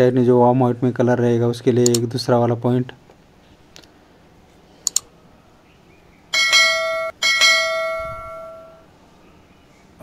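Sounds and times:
mouse double click: 4.8 - 5.1
bright bell ringing: 6.4 - 8.9.

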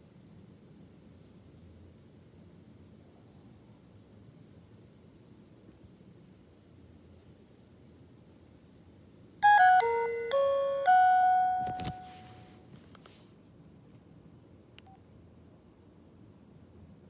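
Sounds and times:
mobile phone power-on melody: 9.4 - 12.6.

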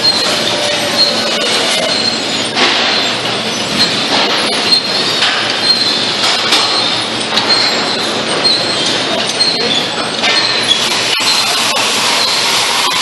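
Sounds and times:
machinery noise: 0.0 - 13.0
trolleys squealing and clanking: 0.0 - 13.0
thin high squeal: 6.7 - 13.0.

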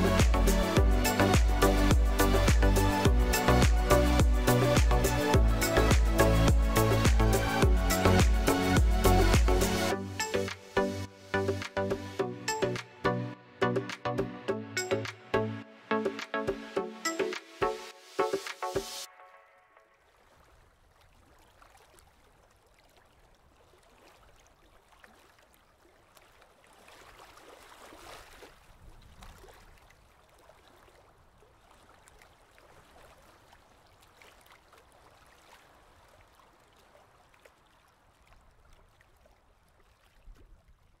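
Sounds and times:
small waves lapping at shore: 19.9 - 41.0.

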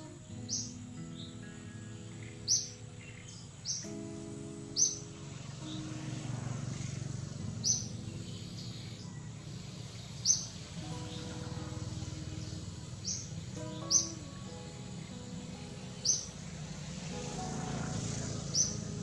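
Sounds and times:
soft background music: 0.0 - 19.0
low rumbling noise: 4.9 - 19.0.

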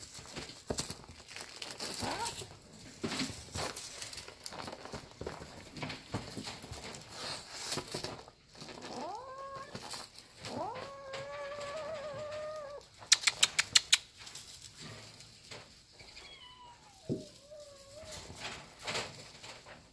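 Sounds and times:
foil streamer crinkling: 0.0 - 13.1, 14.0 - 19.9
kittens scuffling paws: 0.0 - 19.9
kitten meowing: 8.9 - 9.8, 10.5 - 12.9, 16.2 - 18.2.

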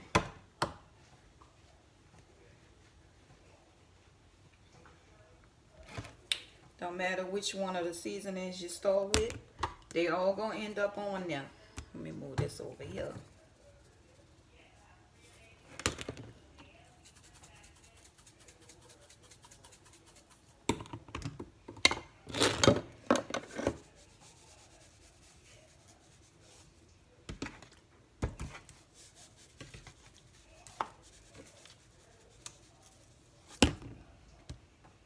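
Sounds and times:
plastic seasoning shakers shaken: 17.0 - 20.6, 28.7 - 33.6.

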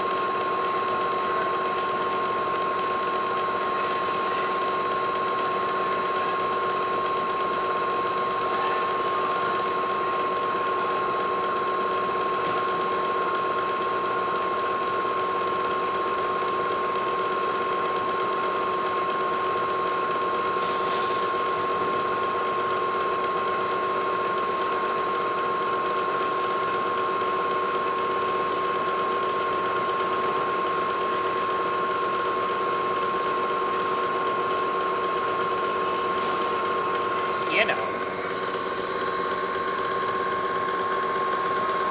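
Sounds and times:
milling machine whine: 0.0 - 41.9.

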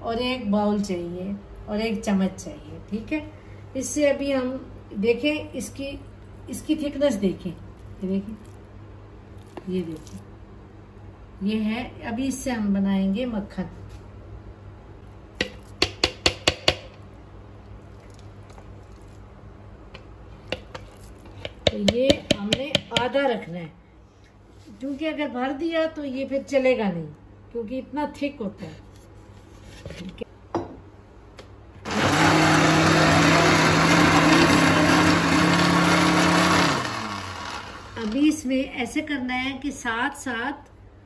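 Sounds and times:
blender motor hum: 31.9 - 38.2.

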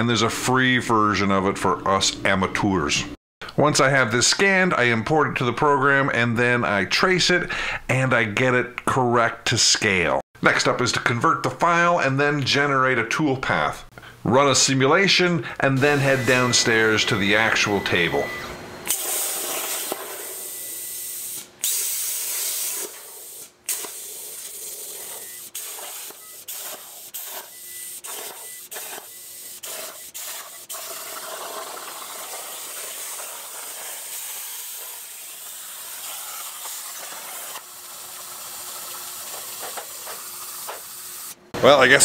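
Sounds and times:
plasma cutter hissing: 18.9 - 41.4.

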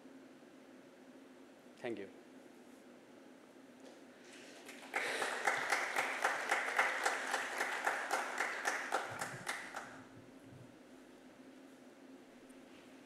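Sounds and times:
audience applauding: 4.6 - 10.0
sharp individual claps: 4.6 - 10.0.

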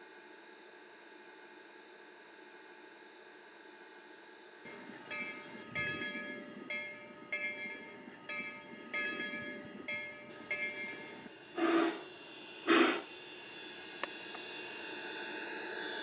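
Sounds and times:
train whistle blasts: 4.7 - 13.2
rhythmic ringing: 4.7 - 13.9
model steam locomotive running: 4.7 - 16.0.

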